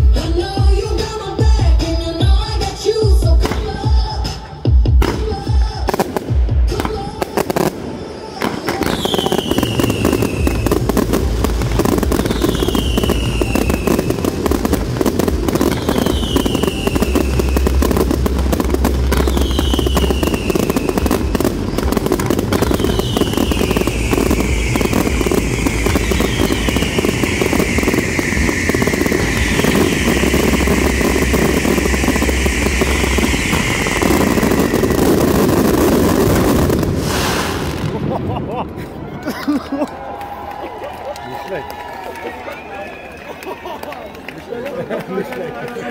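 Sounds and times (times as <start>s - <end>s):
fireworks bangs and crackling: 0.0s - 39.0s
fireworks whistles falling in pitch: 8.6s - 37.9s.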